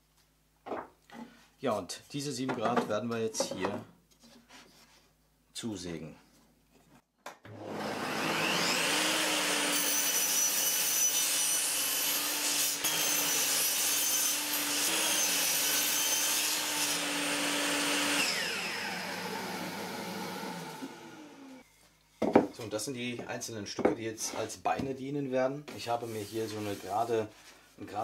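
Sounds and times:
table saw cutting wood: 7.5s - 21.6s.

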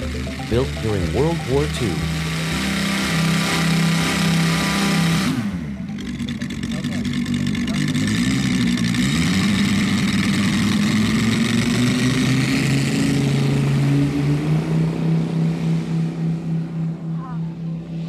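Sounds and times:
model airplane engines running: 2.0s - 13.9s.

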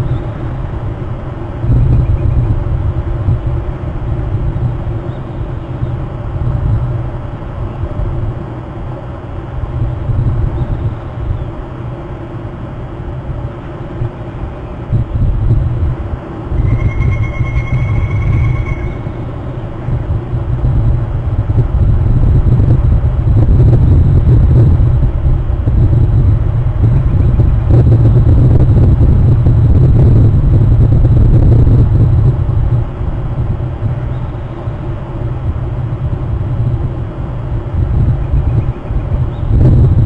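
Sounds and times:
wind buffeting microphone: 0.0s - 40.0s
high steady tone: 16.5s - 19.4s.

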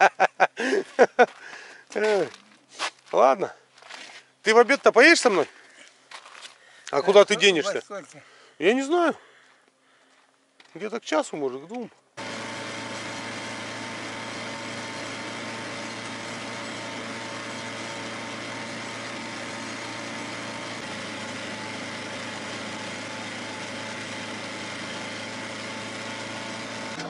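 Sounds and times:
snowmobile engine droning: 12.2s - 27.0s.

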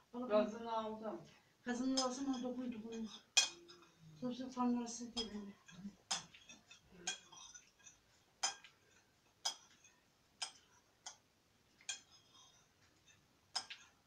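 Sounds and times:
cutlery clinking against a dish: 1.9s - 4.1s, 5.1s - 11.2s, 11.8s - 14.0s.

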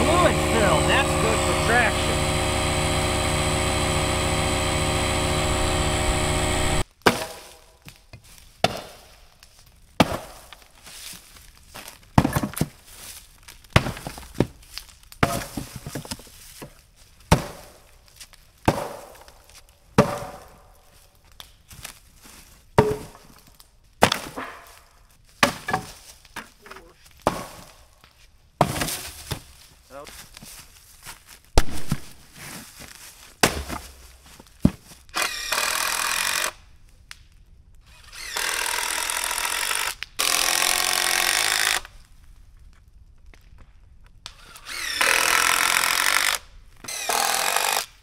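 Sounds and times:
engine running: 0.0s - 6.8s.

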